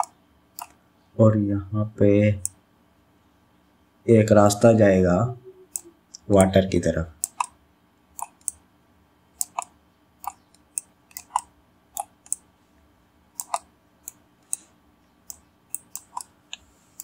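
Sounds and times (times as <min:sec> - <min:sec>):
computer mouse clicking: 0:00.0 - 0:00.8, 0:02.4 - 0:02.6, 0:05.7 - 0:06.6, 0:07.2 - 0:08.6, 0:09.4 - 0:12.5, 0:13.3 - 0:17.0.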